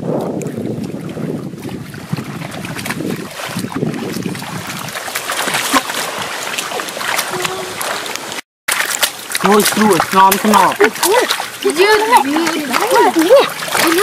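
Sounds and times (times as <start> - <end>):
wind rumbling on microphone: 0.0 - 6.4
splashing through muddy water: 0.0 - 14.0.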